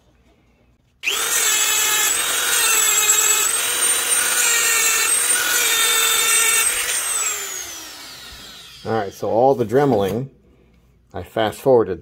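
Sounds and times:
rotary tool grinding metal: 0:01.0 - 0:09.2.

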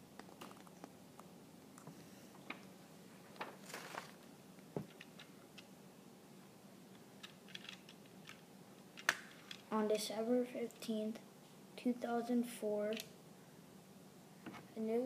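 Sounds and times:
soft clicks and rustles: 0:00.1 - 0:05.8, 0:06.9 - 0:09.8.

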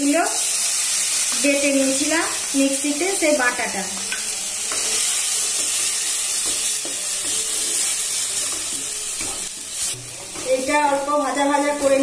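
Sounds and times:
paste sizzling in hot oil: 0:00.0 - 0:12.0
spatula stirring: 0:03.4 - 0:12.0.

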